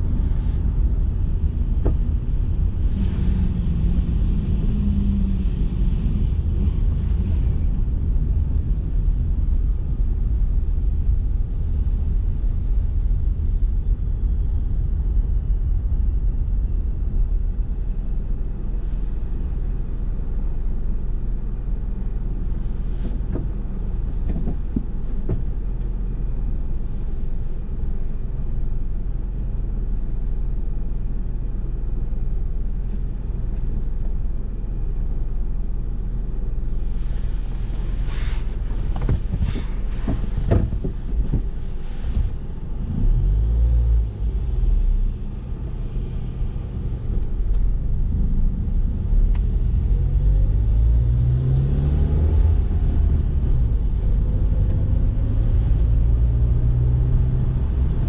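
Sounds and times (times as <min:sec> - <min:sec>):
car road noise and engine rumble: 0:00.0 - 0:58.0.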